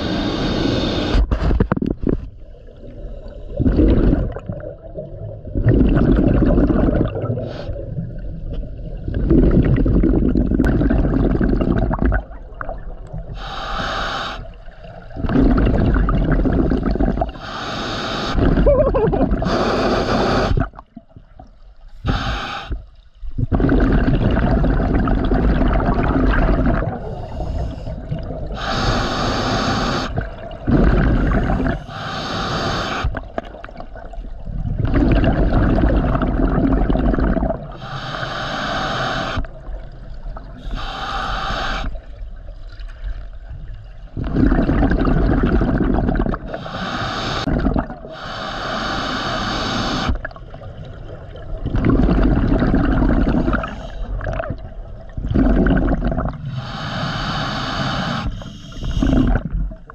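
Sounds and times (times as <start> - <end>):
exhaled bubbles bursting: 1.4 - 13.4, 14.6 - 17.4, 18.3 - 21.5, 23.3 - 31.9, 33.0 - 37.8, 44.1 - 46.6, 47.2 - 48.2, 49.9 - 56.5, 58.8 - 59.9
regulator hissing inhalations: 13.4 - 14.6, 17.4 - 18.4, 19.4 - 20.7, 22.0 - 22.8, 27.0 - 28.0, 28.6 - 30.2, 31.2 - 33.2, 37.7 - 39.5, 40.6 - 42.0, 46.5 - 47.5, 48.1 - 50.2, 56.5 - 59.3.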